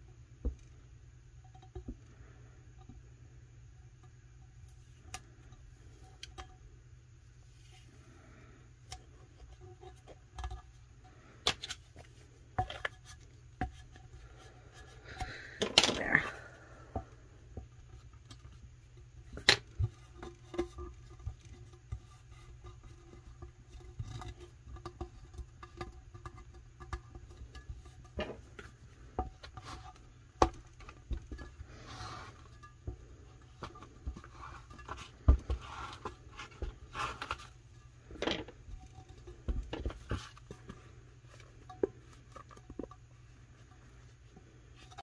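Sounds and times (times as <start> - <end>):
low steady hum: 0.0 - 45.0
hands tapping and rustling: 16.9 - 45.0.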